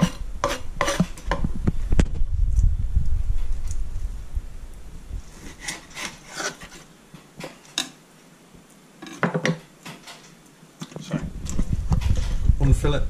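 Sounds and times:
knife scraping and tapping on board: 0:00.0 - 0:01.4.

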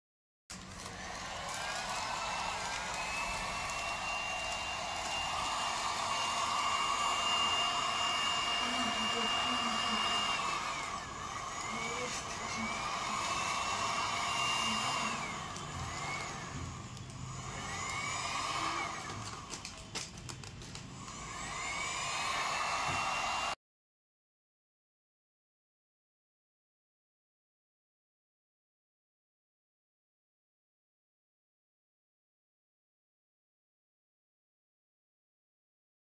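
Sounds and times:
hot air gun blowing and whining: 0:00.6 - 0:20.2, 0:20.8 - 0:23.6.

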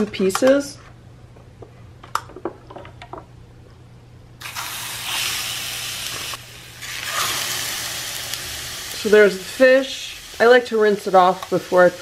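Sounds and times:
fish fillets sizzling on griddle: 0:04.4 - 0:12.0.

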